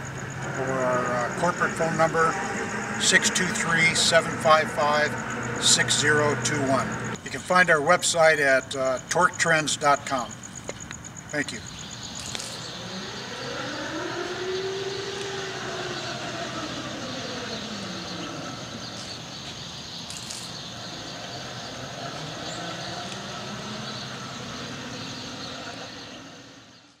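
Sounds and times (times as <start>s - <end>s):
electric motor whine: 0.3s - 7.2s, 12.4s - 19.2s, 20.2s - 26.5s.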